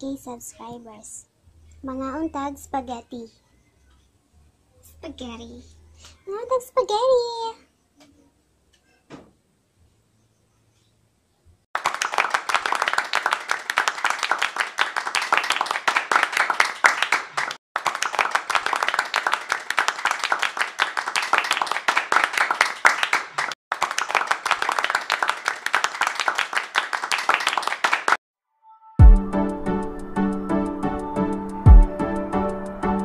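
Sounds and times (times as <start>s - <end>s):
many hands clapping: 11.8s - 28.2s.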